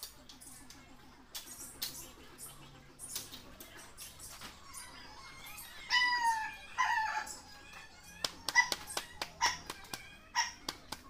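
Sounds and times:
animal calling: 0:05.3 - 0:07.6, 0:08.2 - 0:10.8.

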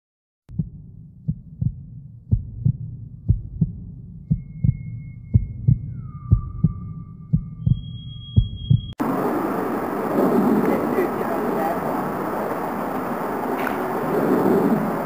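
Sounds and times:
heartbeat thumps: 0:00.5 - 0:09.0.

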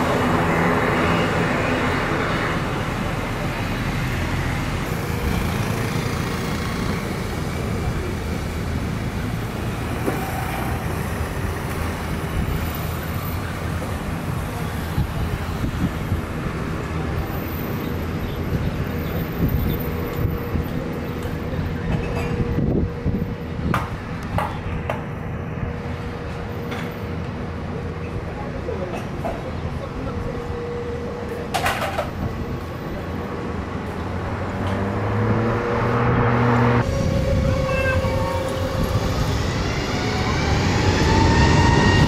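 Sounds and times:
jet engines idling low rumble: 0:36.8 - 0:42.0.

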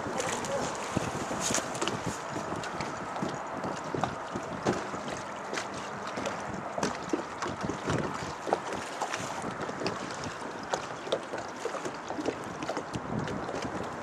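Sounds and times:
short knocks and splashes: 0:00.0 - 0:14.0
water slapping boat hull: 0:00.0 - 0:14.0
wind buffeting microphone: 0:00.0 - 0:14.0.

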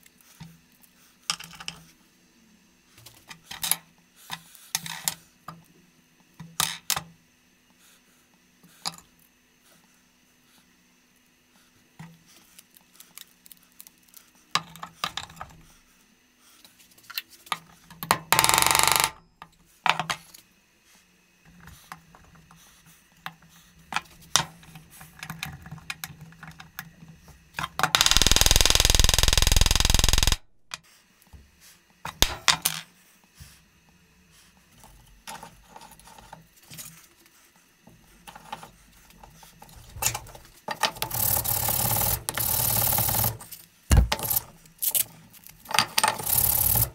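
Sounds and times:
loud steady noise: 0:28.0 - 0:30.4
loud noisy burst: 0:28.1 - 0:30.4.

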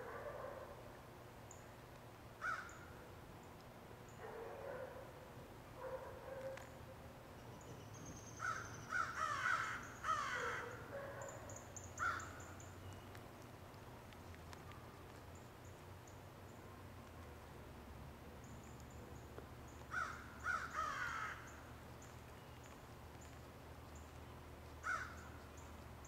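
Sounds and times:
crows cawing: 0:02.4 - 0:02.9, 0:08.4 - 0:10.8, 0:12.0 - 0:12.4, 0:19.9 - 0:21.6, 0:24.8 - 0:25.3.

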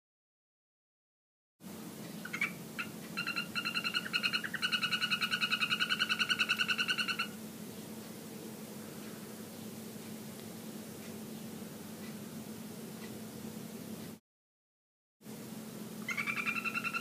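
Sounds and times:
frog calling in clicky trills: 0:02.2 - 0:07.4, 0:16.1 - 0:17.0.

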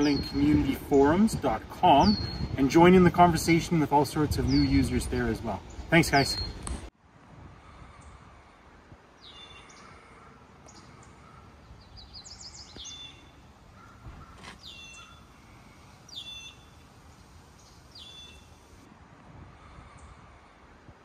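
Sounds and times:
songbird calling: 0:00.0 - 0:00.9, 0:01.9 - 0:02.6, 0:04.4 - 0:06.7, 0:09.2 - 0:18.8.

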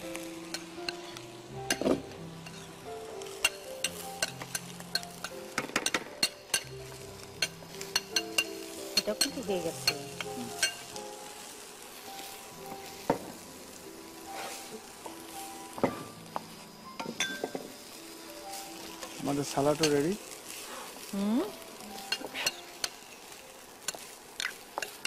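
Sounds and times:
light frying sizzle: 0:00.0 - 0:25.0
spatula scraping frying pan: 0:14.3 - 0:14.8.

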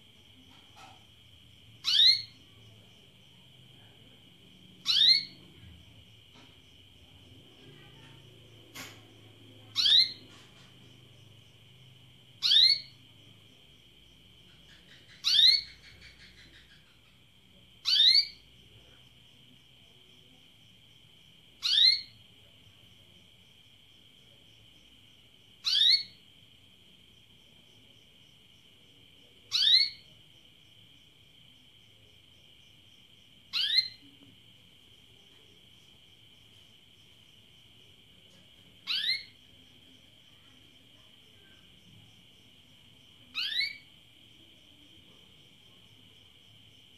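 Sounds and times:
canary chirps: 0:00.4 - 0:02.6, 0:04.7 - 0:06.4, 0:07.5 - 0:13.3, 0:14.2 - 0:19.1, 0:21.5 - 0:22.3, 0:25.5 - 0:26.3, 0:29.5 - 0:30.2, 0:33.4 - 0:34.2, 0:38.3 - 0:40.8, 0:43.1 - 0:44.0.

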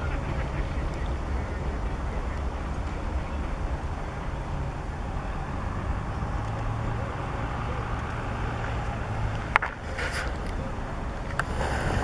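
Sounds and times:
distant train rumble: 0:00.0 - 0:12.0.

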